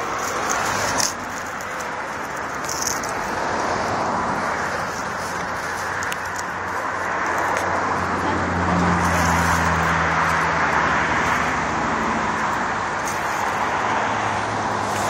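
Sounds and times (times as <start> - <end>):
rustling: 0.0 - 7.8
distant road traffic: 0.0 - 15.0.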